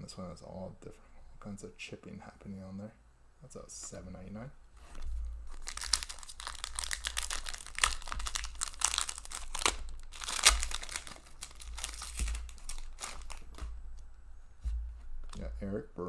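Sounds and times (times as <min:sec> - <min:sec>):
foil wrapper crinkling and tearing: 0:04.9 - 0:13.8.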